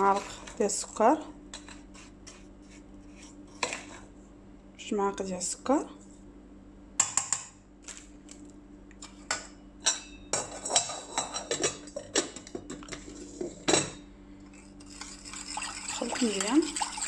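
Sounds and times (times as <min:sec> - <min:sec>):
metal spoon clinking in saucepan: 0:15.0 - 0:17.0.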